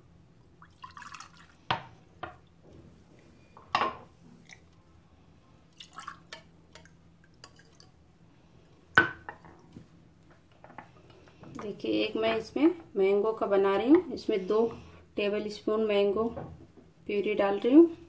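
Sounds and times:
liquid pouring and splashing: 0.6s - 1.6s, 5.7s - 7.9s.

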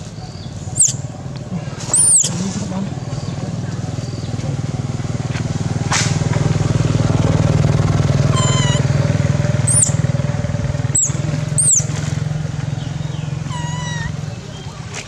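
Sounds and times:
small engine running: 1.8s - 15.0s
sharp high chirps: 9.7s - 10.0s, 11.0s - 11.8s.

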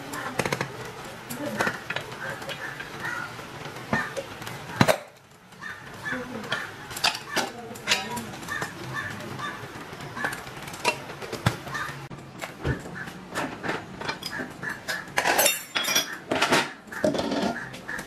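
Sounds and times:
steel cookware clinking on counter: 14.1s - 17.6s.

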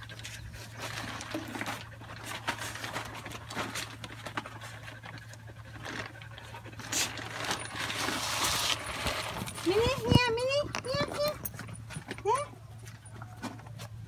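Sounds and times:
woven sack rustling: 6.8s - 10.3s.

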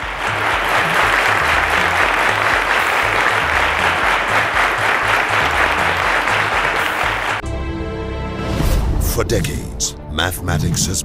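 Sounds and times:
audience applauding: 0.0s - 7.4s
music with pulsing bass beat: 0.0s - 7.4s.

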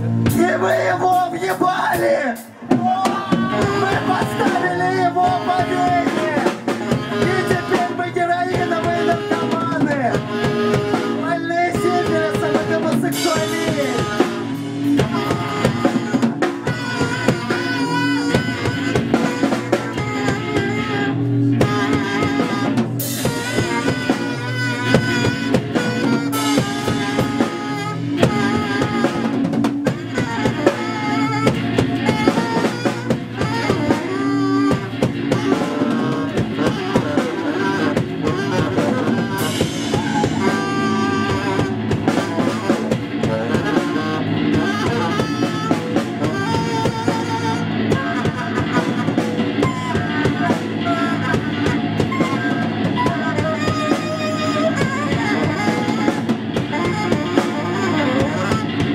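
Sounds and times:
drum kit beat: 0.0s - 58.9s
electric guitar: 0.0s - 58.9s
saxophone melody: 0.0s - 58.9s.

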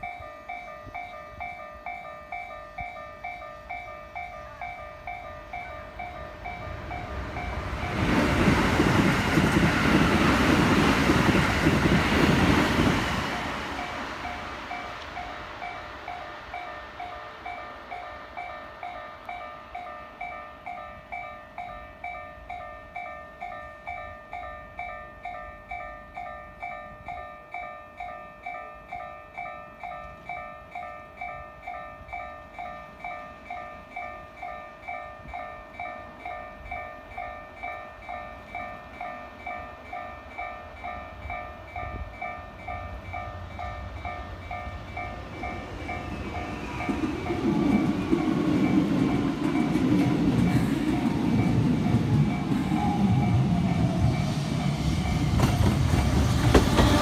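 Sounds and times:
electric locomotive rumble: 0.0s - 57.0s
level-crossing warning bell ringing: 0.0s - 57.0s.

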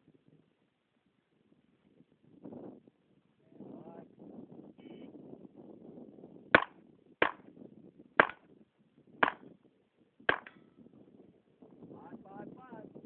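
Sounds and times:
handgun shots: 6.6s - 7.4s, 8.2s - 8.4s, 9.2s - 9.5s, 10.3s - 10.5s.

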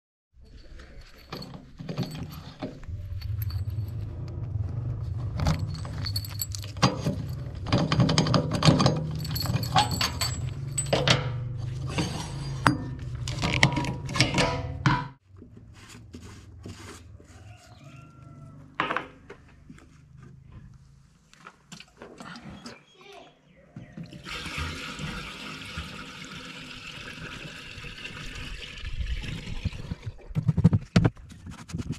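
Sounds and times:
keys jangling: 0.9s - 12.5s.

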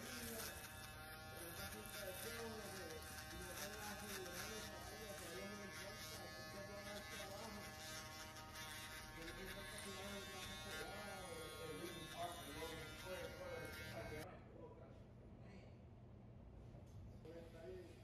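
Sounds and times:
electric shaver buzzing: 0.0s - 14.2s.

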